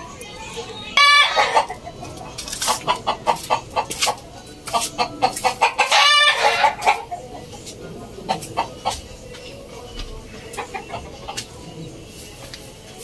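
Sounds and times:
chickens clucking: 0.0 - 13.0
loud chicken call: 0.9 - 1.8.

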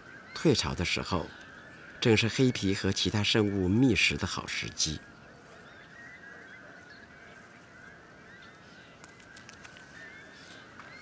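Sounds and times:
distant birds calling: 0.0 - 11.0
faint clicks: 8.4 - 11.0.

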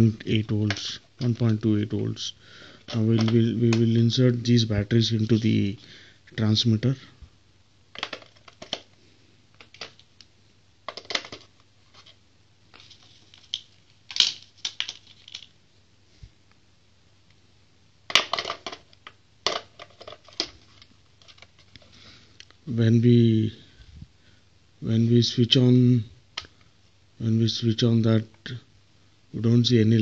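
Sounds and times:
plastic battery case handled: 2.8 - 3.9, 7.9 - 9.0, 9.6 - 10.1, 10.9 - 15.5, 18.1 - 21.9.

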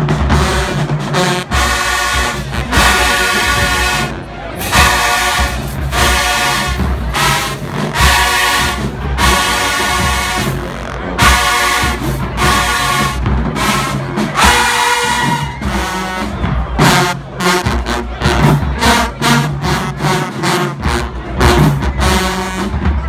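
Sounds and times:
marching band brass: 0.0 - 23.0
pounding drum beat: 0.0 - 23.0.

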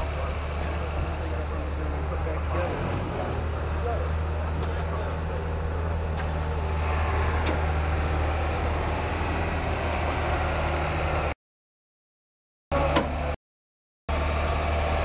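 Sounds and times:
vehicle engine idling: 0.0 - 11.3.

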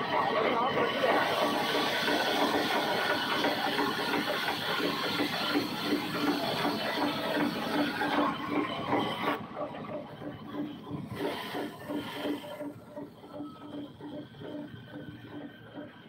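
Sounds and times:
rapid mechanical clatter: 0.0 - 16.0
band saw cutting log: 1.0 - 9.4.

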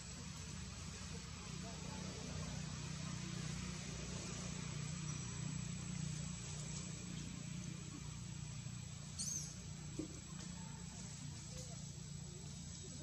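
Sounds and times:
low hum and hiss: 0.0 - 13.0
high chirp: 9.2 - 9.6.

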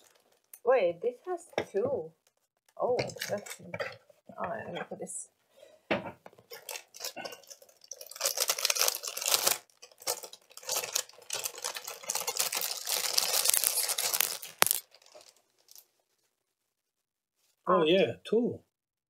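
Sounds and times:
plastic bag crinkling: 0.0 - 0.6, 3.0 - 3.8, 6.4 - 15.9.

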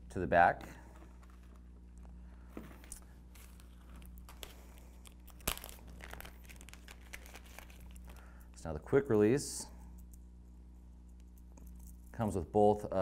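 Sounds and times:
plastic packaging crinkling: 2.8 - 8.4.

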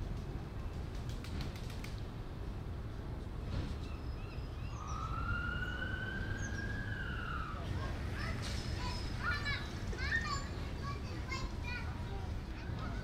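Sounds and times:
emergency siren: 4.7 - 7.7.

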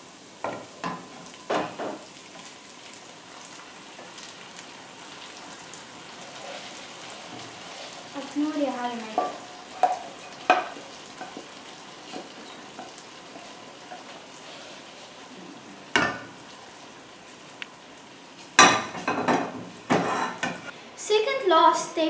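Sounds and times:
food sizzling in a frying pan: 0.0 - 22.0
metal cookware clanking: 18.6 - 20.7.

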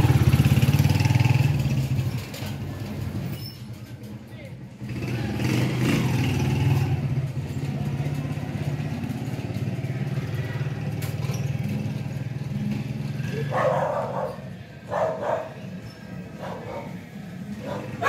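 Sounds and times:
dog barking: 13.4 - 15.7, 16.3 - 17.0, 17.6 - 18.0.

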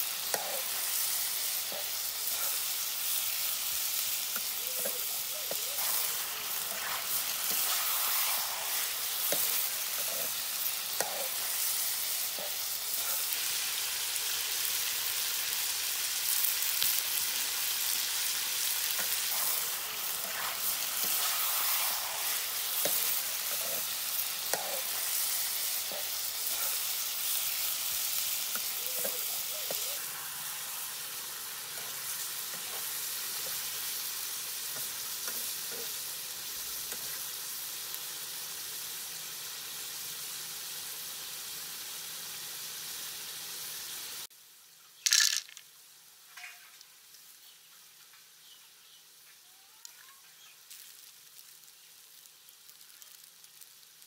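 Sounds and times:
chicken sizzling in pan: 0.0 - 54.0
metal spatula scraping: 4.8 - 11.4, 19.0 - 25.1.

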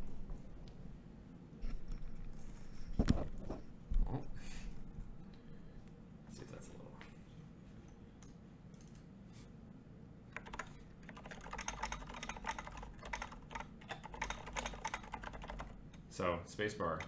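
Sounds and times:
mechanical keyboard typing: 10.4 - 15.8.

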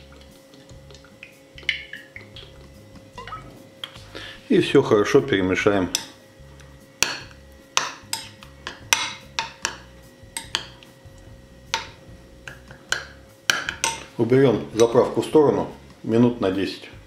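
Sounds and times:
teaspoon clinking against glass bowl: 3.2 - 3.5, 10.4 - 10.8.

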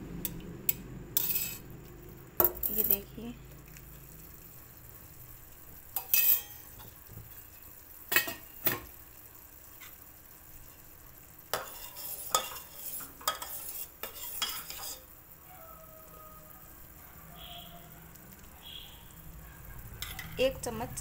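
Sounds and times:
spoon clinking and scraping pot: 1.2 - 1.7, 6.0 - 7.0, 11.5 - 15.1, 20.0 - 20.4
syrup sizzling softly: 2.9 - 21.0.

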